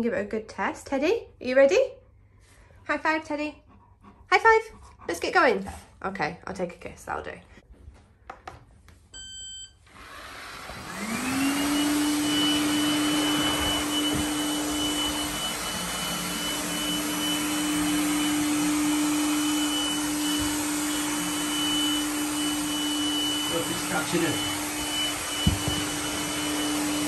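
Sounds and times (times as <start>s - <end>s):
robot vacuum motor whine: 9.8s - 27.0s.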